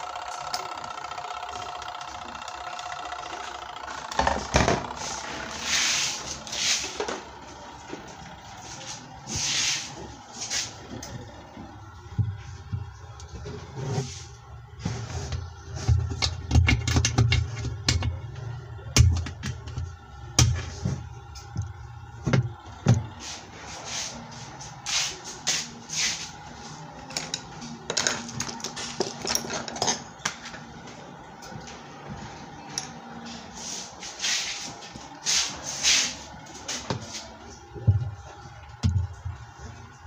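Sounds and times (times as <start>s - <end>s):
metal tools clattering on plastic: 27.1s - 30.1s.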